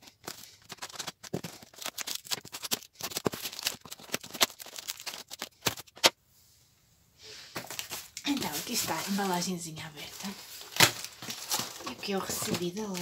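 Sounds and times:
paper wrapping crinkling: 0:00.0 - 0:06.1, 0:07.6 - 0:13.0
scissors snipping paper: 0:00.2 - 0:06.1.

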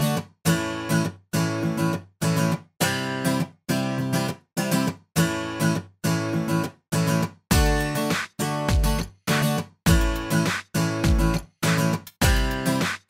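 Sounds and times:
short choppy music chords: 0:07.5 - 0:13.0.

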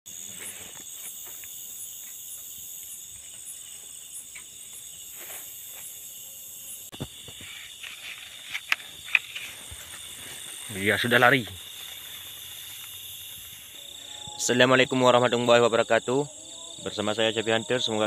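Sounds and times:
crickets trilling: 0:00.1 - 0:18.0.

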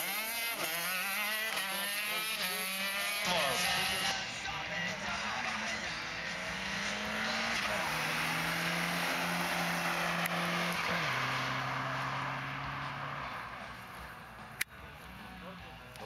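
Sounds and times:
car engine running hard: 0:00.0 - 0:16.0
tyre and road noise: 0:00.0 - 0:16.0.

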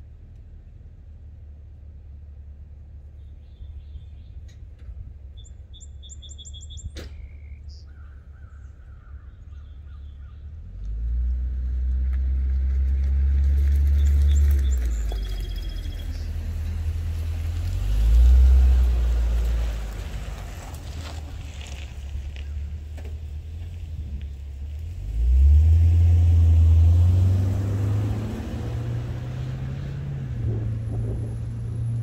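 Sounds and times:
birds chirping: 0:05.3 - 0:10.6, 0:13.8 - 0:16.8
deep exhaust note: 0:24.9 - 0:32.0.

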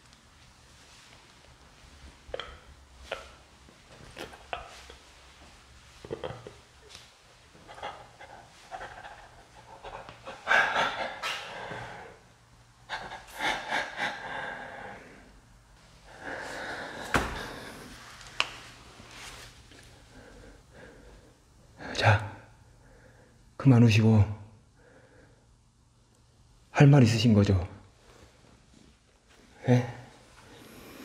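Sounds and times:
man breathing hard: 0:07.7 - 0:18.1, 0:30.4 - 0:31.0.

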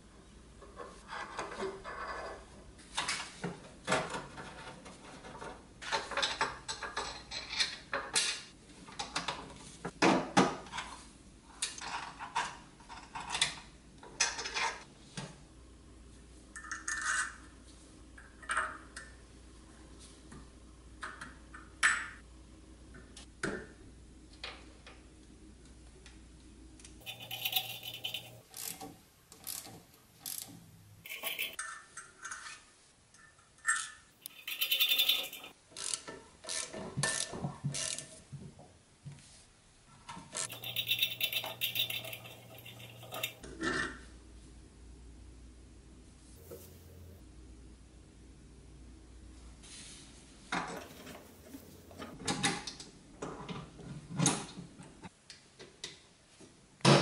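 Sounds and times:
small steel parts clinking: 0:27.0 - 0:28.8, 0:29.4 - 0:31.6, 0:33.6 - 0:35.6, 0:40.4 - 0:43.4, 0:50.8 - 0:52.2.

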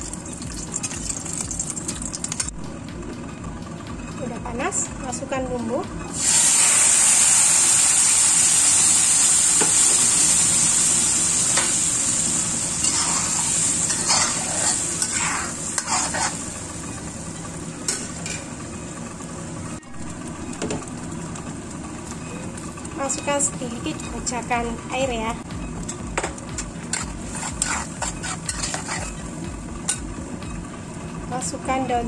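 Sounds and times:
paste sizzling in hot oil: 0:06.2 - 0:16.6, 0:26.9 - 0:29.2
steel spatula scraping wok: 0:12.8 - 0:16.6, 0:26.9 - 0:29.3.

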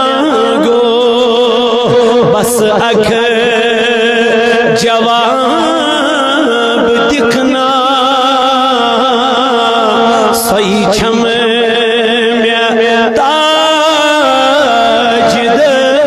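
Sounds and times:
man chanting through microphone: 0:00.0 - 0:16.0.

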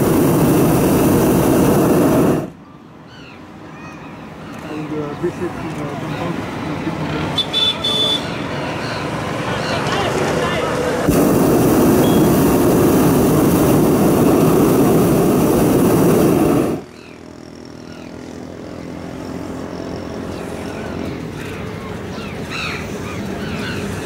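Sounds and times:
propane burner blast: 0:00.0 - 0:02.6, 0:11.0 - 0:17.0
birds calling: 0:02.6 - 0:06.5, 0:07.4 - 0:10.2, 0:16.8 - 0:18.4, 0:19.7 - 0:24.0.

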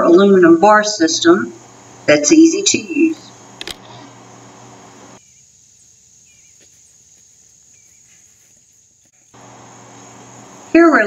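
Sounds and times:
low background noise: 0:00.0 - 0:08.0, 0:09.0 - 0:11.0
insects trilling: 0:00.0 - 0:11.0
faint bird chirps: 0:02.8 - 0:10.8.

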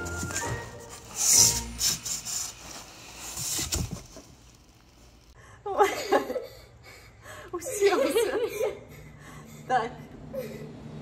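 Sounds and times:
cardboard scraping: 0:00.0 - 0:05.3.

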